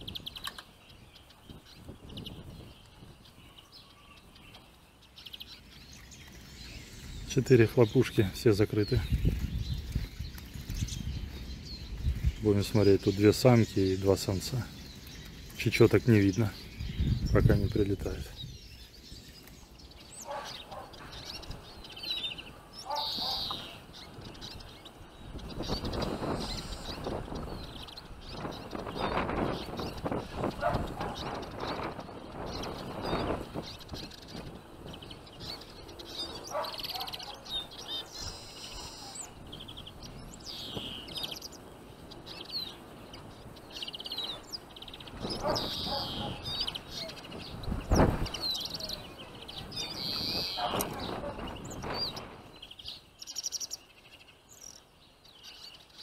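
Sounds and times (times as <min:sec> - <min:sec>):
bird trill: 0:00.0 - 0:17.8, 0:18.4 - 0:56.0
finches chirping: 0:00.0 - 0:56.0
buzzy bird call: 0:25.5 - 0:34.5, 0:35.4 - 0:41.7, 0:43.7 - 0:53.8.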